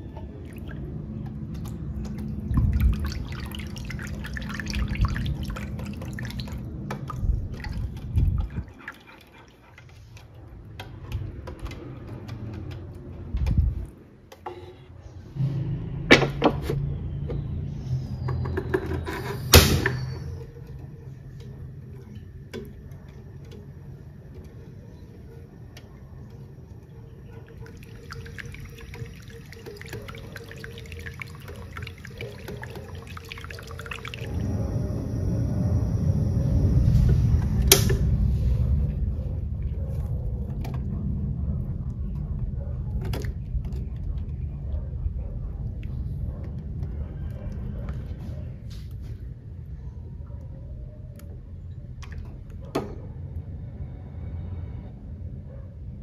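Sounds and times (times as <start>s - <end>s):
whisk sloshing liquid in pot: 1.6s - 10.5s, 27.5s - 34.4s.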